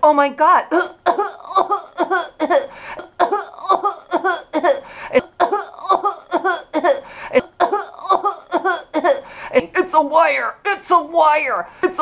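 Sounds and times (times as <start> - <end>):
woman coughing and gagging: 0.7 - 9.4.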